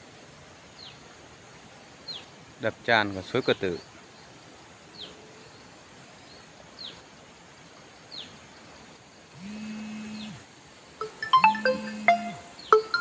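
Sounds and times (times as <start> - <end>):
stream rushing: 0.0 - 13.0
background music: 11.0 - 13.0.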